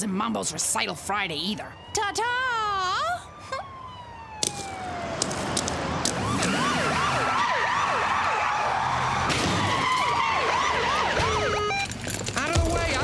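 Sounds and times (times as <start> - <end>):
police sirens wailing: 0.0 - 13.0.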